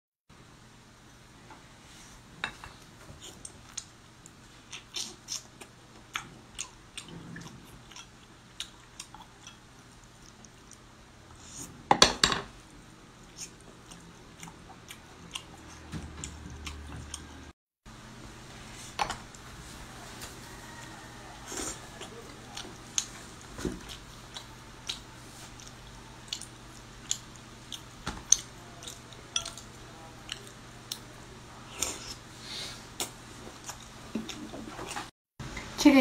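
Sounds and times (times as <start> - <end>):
person chewing: 3.2 - 10.9, 13.2 - 17.6, 20.6 - 35.1
chopsticks clicking on dishes: 28.3 - 29.7.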